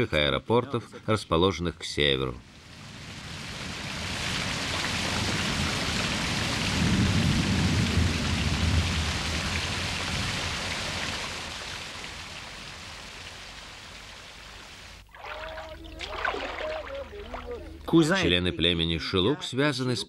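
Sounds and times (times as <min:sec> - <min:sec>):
heavy rain: 0:02.4 - 0:18.2
low thunder rumble: 0:03.2 - 0:11.7.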